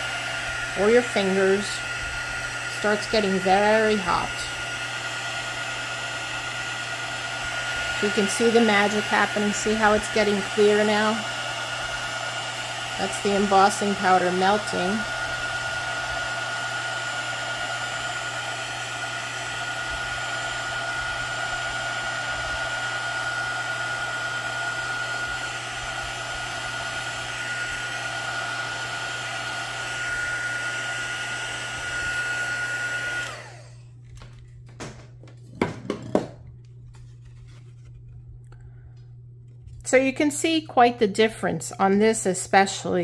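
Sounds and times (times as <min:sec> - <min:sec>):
heat tool blowing: 0:00.0 - 0:33.9.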